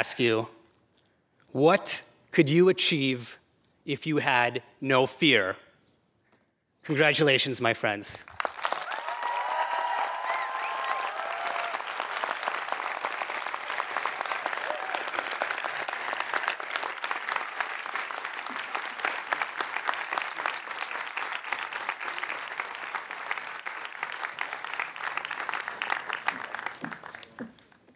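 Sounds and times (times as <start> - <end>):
large audience applauding: 8.3 - 27.9.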